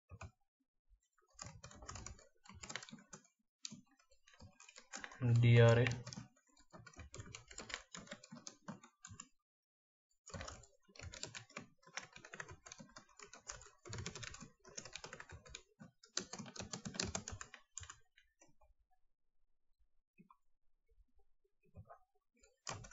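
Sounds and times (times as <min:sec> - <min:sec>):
computer keyboard typing: 0:01.3 - 0:09.3, 0:10.2 - 0:18.1, 0:22.4 - 0:22.9.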